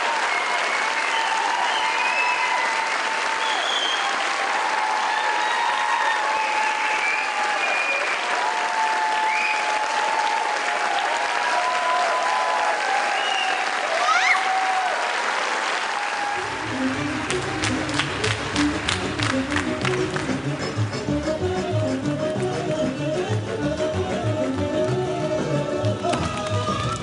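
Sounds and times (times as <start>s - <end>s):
audience applauding: 0.0s - 22.6s.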